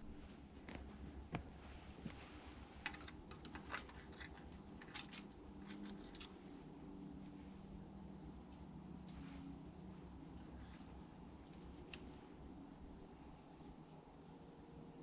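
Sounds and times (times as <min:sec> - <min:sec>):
faint steady low hum: 0:00.0 - 0:15.0
small clicks and handling noise: 0:00.6 - 0:06.4, 0:10.3 - 0:12.2.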